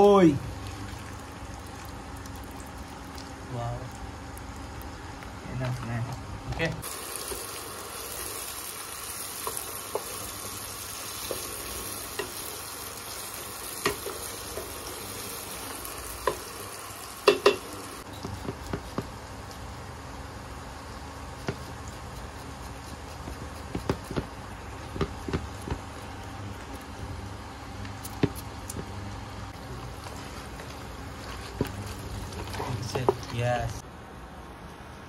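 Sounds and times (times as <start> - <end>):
onions sizzling in oil: 6.8 - 24.8.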